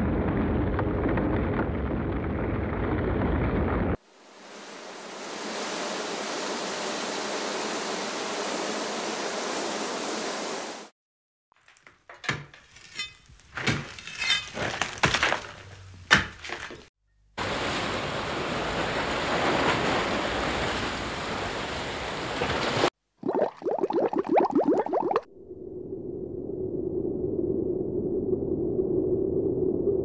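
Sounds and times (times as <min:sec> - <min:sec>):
low steady rumble: 0:25.3 - 0:30.0.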